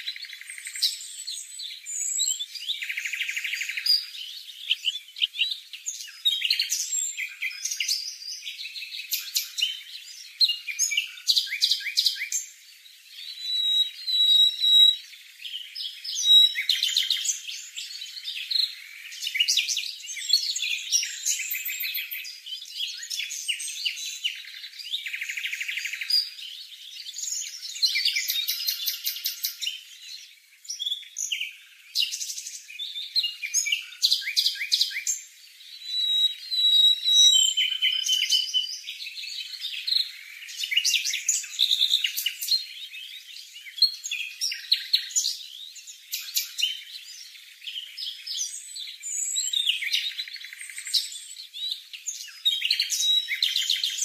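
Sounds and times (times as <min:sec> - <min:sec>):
bird chirping high-pitched: 0:13.2 - 0:15.0, 0:15.9 - 0:19.6, 0:35.8 - 0:38.9, 0:52.3 - 0:54.0.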